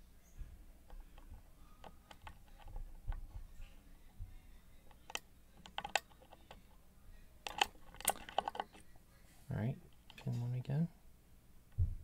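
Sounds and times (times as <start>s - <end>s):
lock pick metallic clicks: 4.9s - 6.6s, 7.4s - 8.8s.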